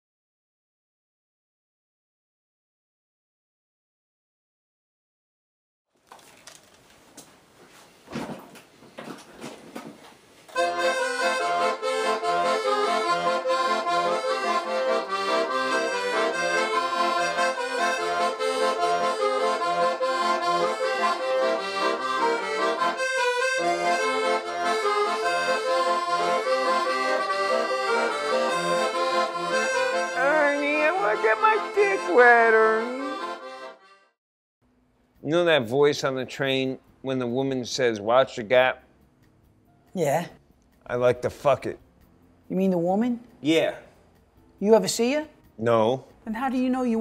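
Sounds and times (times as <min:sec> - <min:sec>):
accordion playing a tune: 0:10.5 - 0:34.2.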